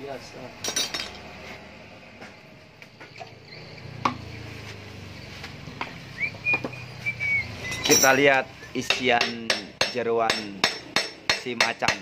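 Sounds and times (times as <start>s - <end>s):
hand tools tapping metal: 0.6s - 1.3s, 7.6s - 12.0s.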